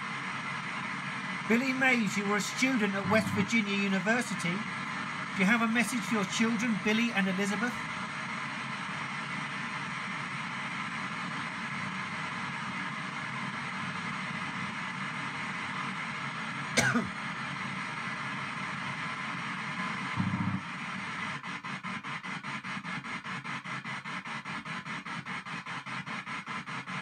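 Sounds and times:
radio static hiss: 1.5s - 4.7s, 5.4s - 7.8s, 20.2s - 21.0s
radio burst with falling pitch: 1.9s - 4.6s, 20.2s - 20.6s.

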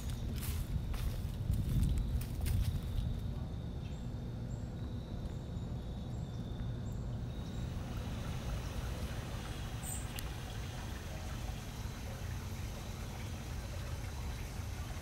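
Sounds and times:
footsteps in dry leaves: 0.0s - 3.2s
steady low rumble: 0.0s - 15.0s.

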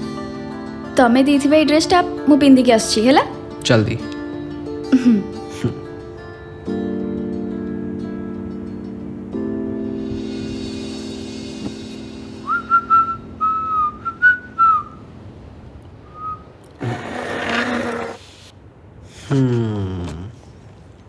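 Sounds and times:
background music notes: 0.0s - 15.3s
man whistling a tune: 12.4s - 15.0s, 16.1s - 16.5s.

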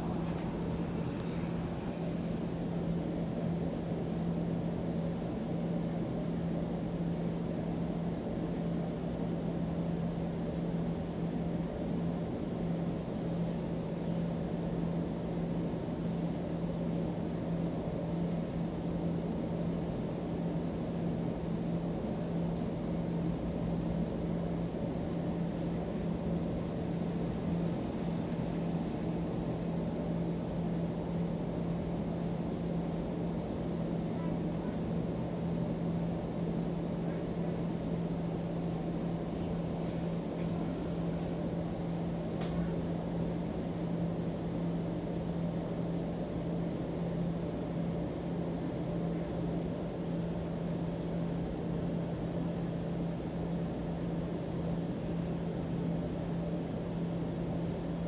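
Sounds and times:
streetcar cabin rumble: 0.0s - 45.8s
constant low hum: 0.0s - 58.0s.

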